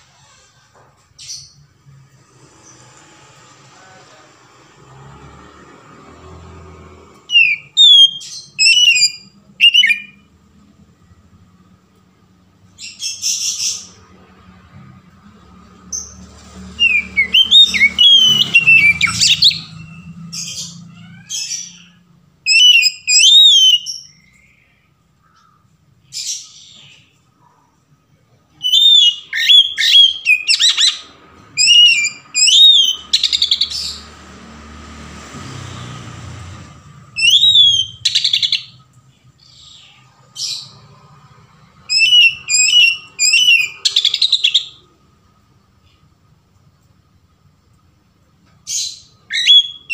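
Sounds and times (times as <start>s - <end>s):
bird singing whistled phrases: 7.3s - 10.2s, 16.8s - 20.1s, 22.5s - 24.7s, 28.6s - 31.0s, 31.6s - 33.7s, 37.2s - 38.7s, 41.9s - 44.8s, 49.3s - 49.9s.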